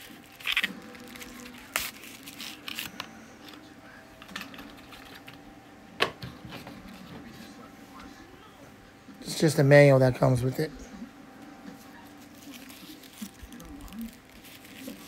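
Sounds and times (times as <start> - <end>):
packaging clicks and rustles: 0.0 - 5.4.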